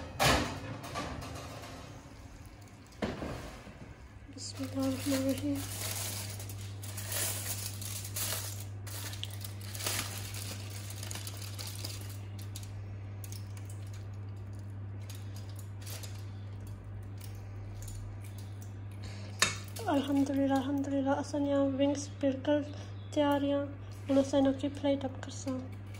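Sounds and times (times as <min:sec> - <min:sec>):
steady low hum: 0:00.0 - 0:25.9
aluminium foil crinkling: 0:04.4 - 0:18.7, 0:19.6 - 0:21.0.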